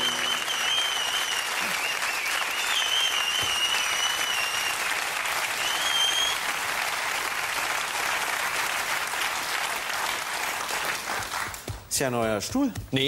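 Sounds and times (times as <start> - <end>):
high wavering whistles: 0.0 - 4.6
audience applauding: 0.0 - 11.9.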